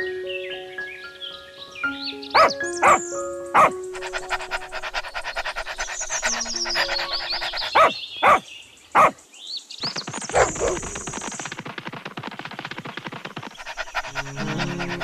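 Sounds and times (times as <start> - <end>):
dog barking: 2.4 - 3.0, 3.6 - 8.4, 9.0 - 9.2, 10.3 - 11.0, 13.6 - 15.0
rapid rhythmic background: 3.6 - 8.4.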